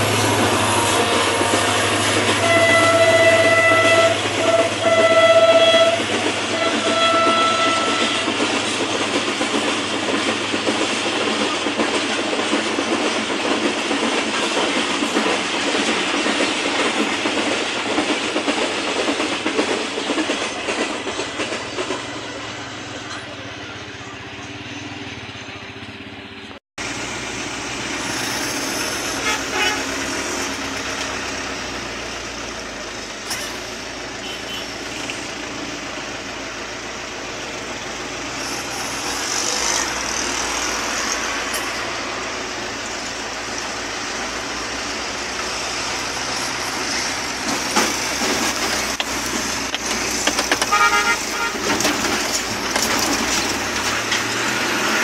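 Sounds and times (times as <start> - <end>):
truck engine and road noise: 0.0 - 5.0, 21.2 - 55.0
short horn toots: 0.7 - 6.0, 50.7 - 51.7
vehicle horns honking: 0.7 - 8.3, 29.1 - 29.9, 34.2 - 34.7, 50.6 - 51.8.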